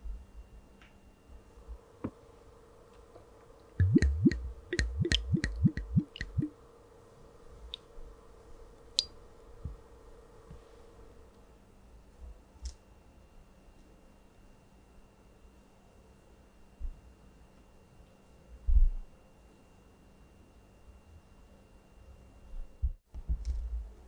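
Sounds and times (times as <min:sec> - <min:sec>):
liquid glugging from bottle: 0:03.8 - 0:06.5.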